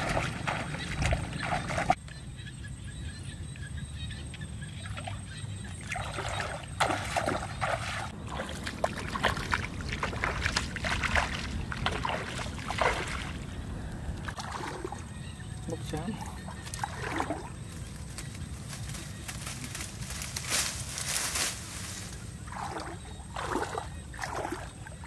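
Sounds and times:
water sloshing and splashing: 0.0s - 2.0s, 4.7s - 25.0s
steady low rumble: 8.1s - 14.4s.

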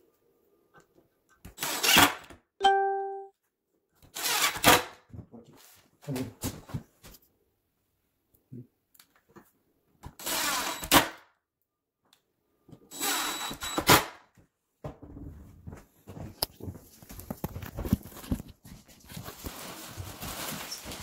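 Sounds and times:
cordless drill driving screws: 1.6s - 2.3s, 4.1s - 4.8s, 10.2s - 11.2s, 12.9s - 14.1s.

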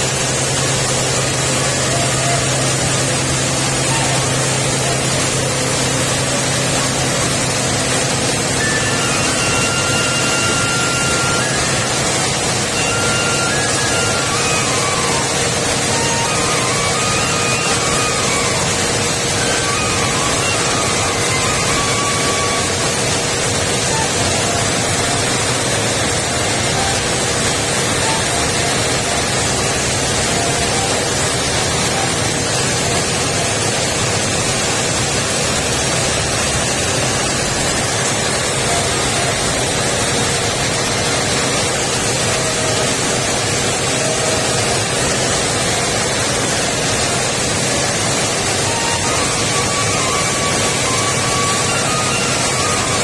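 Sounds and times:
coffee mill rushing noise: 0.0s - 53.0s
constant hum: 0.0s - 53.0s.

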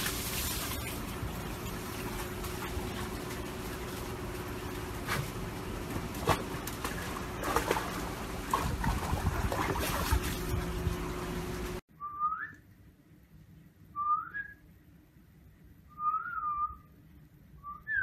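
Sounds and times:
water trickling into a tub: 0.0s - 5.0s
dog pawing at splashing water: 5.0s - 10.6s.

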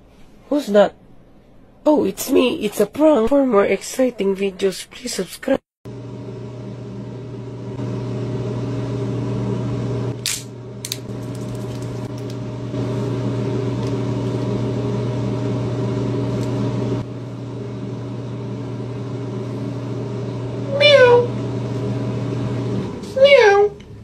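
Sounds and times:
steady low hum: 5.9s - 23.1s.

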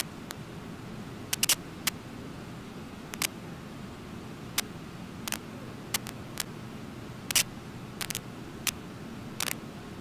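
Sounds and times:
sharp clicks: 1.3s - 2.0s, 3.1s - 3.4s, 4.6s - 6.5s, 7.3s - 8.8s, 9.4s - 9.6s.

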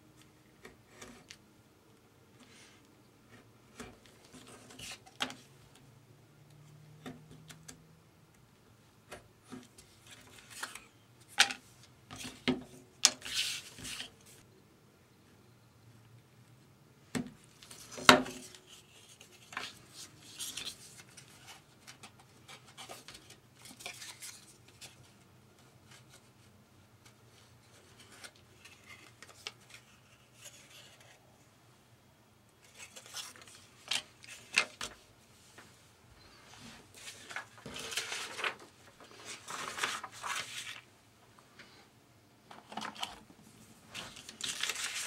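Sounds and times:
paper rustling and sliding: 36.4s - 40.9s, 43.9s - 45.0s.

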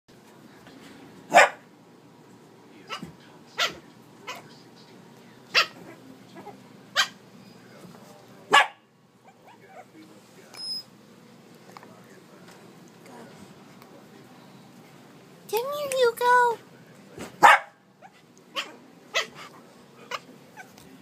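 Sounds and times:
dog barking: 1.3s - 1.7s, 2.9s - 4.4s, 5.5s - 6.0s, 6.9s - 7.2s, 8.5s - 9.9s, 17.4s - 19.5s.

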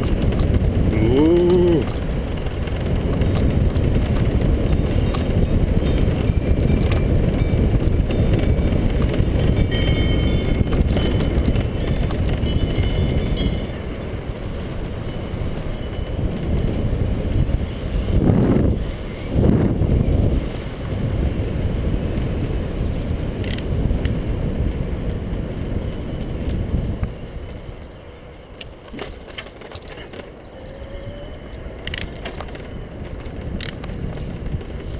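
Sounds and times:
tyre rumble on road: 0.0s - 34.9s
wind buffeting microphone: 0.0s - 34.9s
light rattles and ticks: 31.8s - 34.9s.

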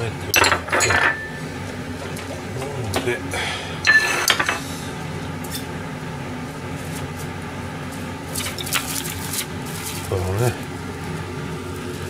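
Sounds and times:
steady low hum: 0.0s - 12.0s
kitchenware clattering on steel: 0.3s - 1.5s, 3.9s - 4.6s.

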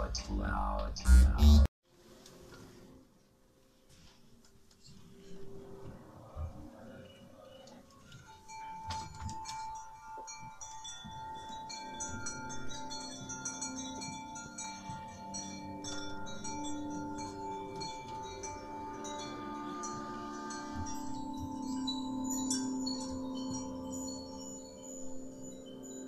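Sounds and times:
steady held tone: 0.0s - 1.7s
chime-like tinkling tones: 6.8s - 26.0s.

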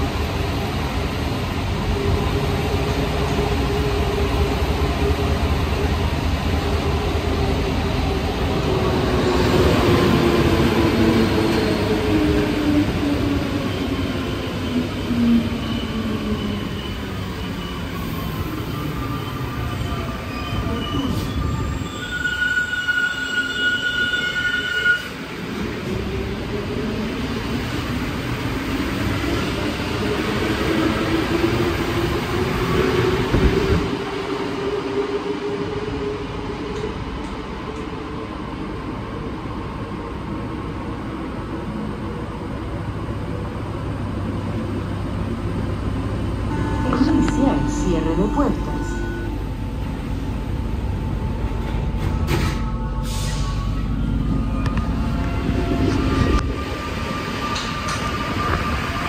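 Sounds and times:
train running noise: 41.7s - 59.0s.

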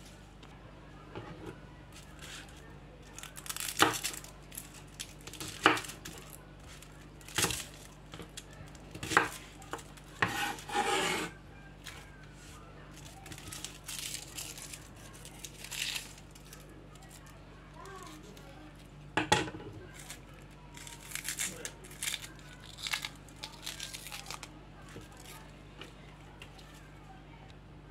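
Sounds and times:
knife scraping on board: 10.2s - 11.4s.

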